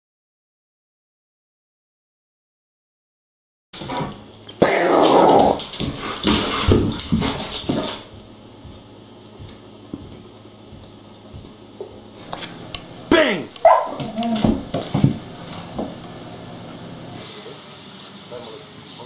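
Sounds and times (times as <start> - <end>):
dog whining and growling: 4.6 - 6.2.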